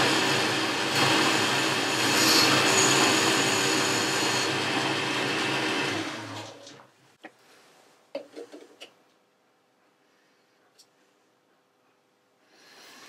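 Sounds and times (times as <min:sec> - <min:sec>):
lathe running and winding down: 0:00.0 - 0:06.8.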